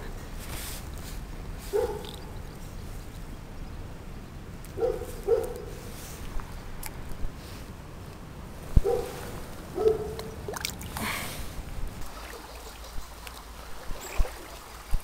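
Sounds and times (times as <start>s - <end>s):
dog barking: 1.7s - 2.1s, 4.8s - 5.7s, 8.8s - 9.2s, 9.8s - 10.3s
shallow stream rushing: 8.8s - 15.0s.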